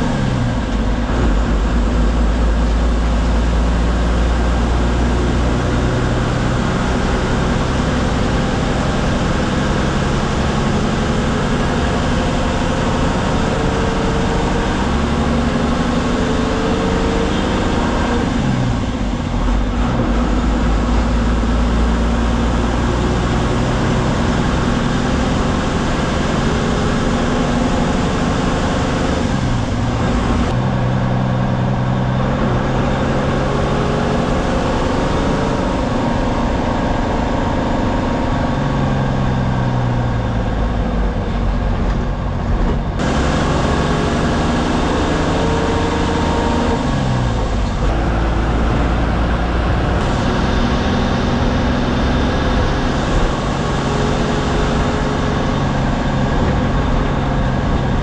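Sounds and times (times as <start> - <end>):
bus diesel engine running: 0.0 - 58.0.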